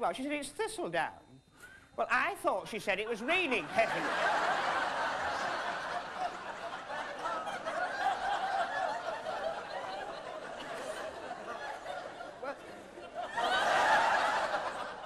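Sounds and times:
audience laughing: 0:03.6 - 0:15.0.

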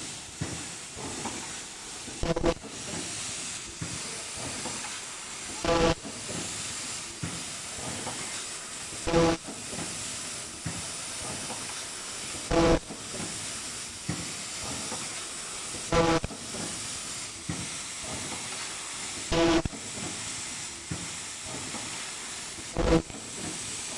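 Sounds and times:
machine hissing: 0:00.0 - 0:23.9
loud buzzing tone: 0:01.7 - 0:02.6, 0:04.9 - 0:06.0, 0:08.7 - 0:09.4, 0:12.0 - 0:12.9, 0:15.1 - 0:16.3, 0:18.6 - 0:19.7, 0:22.2 - 0:23.1.

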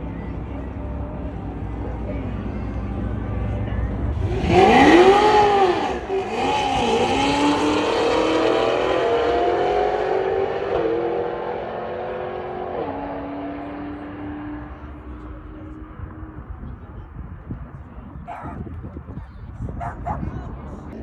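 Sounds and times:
car engine accelerating hard: 0:01.3 - 0:16.5.

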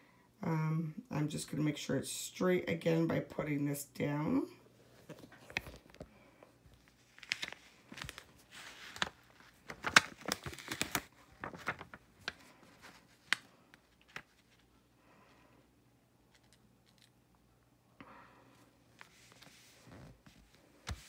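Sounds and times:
plastic vinyl sheet crinkling: 0:04.8 - 0:14.8, 0:18.9 - 0:21.0.

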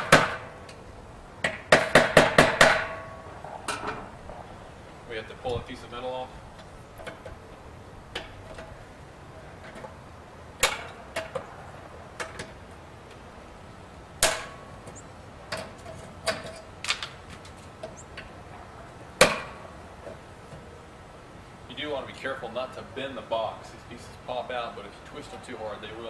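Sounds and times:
ringing metal knocks: 0:01.4 - 0:04.1, 0:10.6 - 0:11.5, 0:14.2 - 0:16.6.

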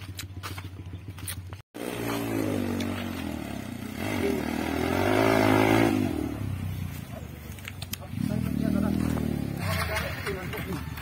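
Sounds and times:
footsteps on dirt road: 0:00.0 - 0:03.6, 0:06.6 - 0:11.0
motorcycle engine revving: 0:00.0 - 0:11.0.

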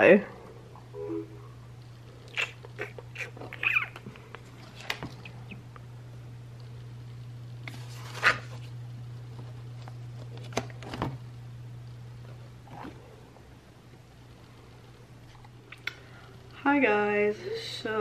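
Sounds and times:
steady low hum: 0:00.0 - 0:18.0
notebook pages flipping: 0:04.6 - 0:05.2, 0:07.7 - 0:08.7.

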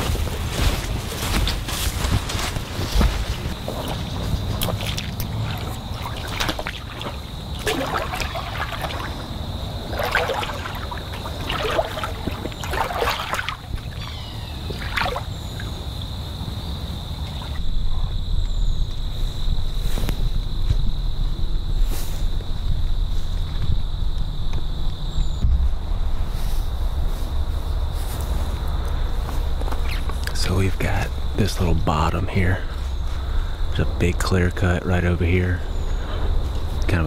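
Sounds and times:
footsteps splashing in water: 0:00.0 - 0:15.4
wind rumble on microphone: 0:13.6 - 0:34.2.

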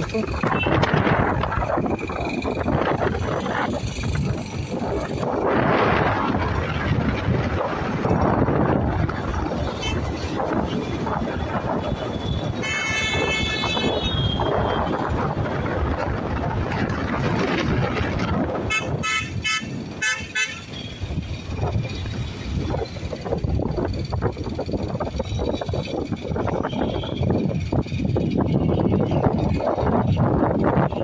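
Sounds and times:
street traffic noise: 0:00.0 - 0:31.0
wind on microphone: 0:00.0 - 0:31.0
vehicle horn: 0:12.6 - 0:14.8, 0:18.7 - 0:21.0, 0:26.7 - 0:27.3.

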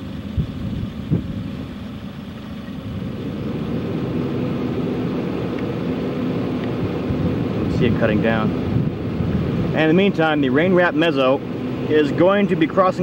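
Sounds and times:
car engine running: 0:00.0 - 0:13.0.

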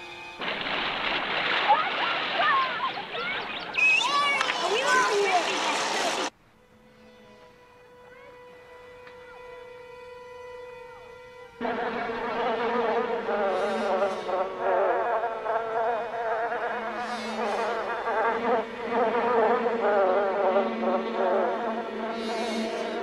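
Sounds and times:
swarm of flies buzzing: 0:11.6 - 0:23.0.

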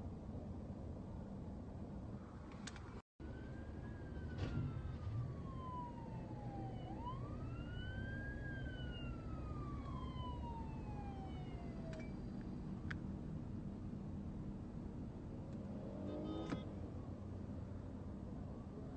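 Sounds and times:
car engine and road rumble: 0:00.0 - 0:18.9
police siren wailing: 0:03.2 - 0:12.4.

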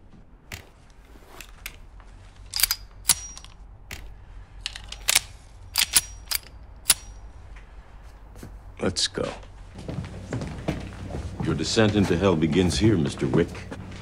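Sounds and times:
pistol action metallic clicks: 0:02.5 - 0:07.3.

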